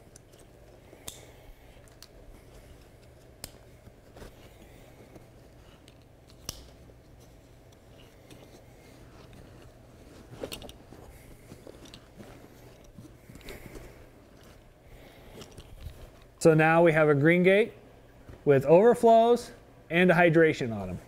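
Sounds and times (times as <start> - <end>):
fabric rustling: 0.0 - 16.4.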